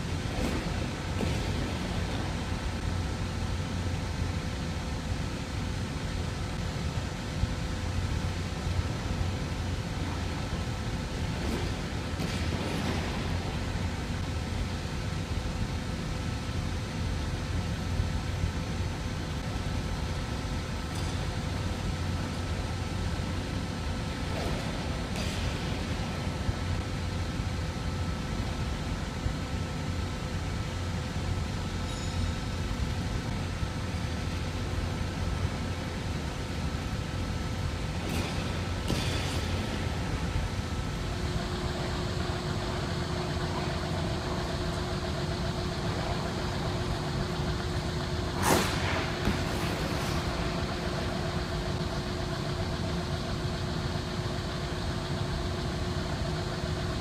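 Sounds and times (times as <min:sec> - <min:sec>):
machinery hum: 0:00.0 - 0:57.0
skate blades scraping ice: 0:48.4 - 0:50.4.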